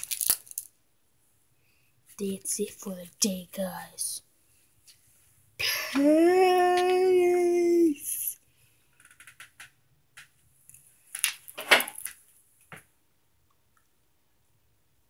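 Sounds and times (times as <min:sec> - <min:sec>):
person speaking drawn-out word: 0:02.2 - 0:04.2, 0:05.6 - 0:08.4.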